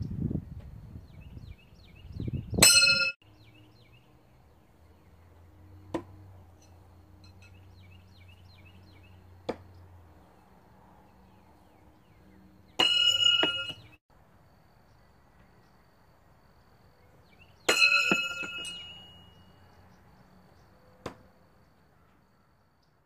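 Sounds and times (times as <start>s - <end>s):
knives hitting wooden target: 12.8s - 13.8s.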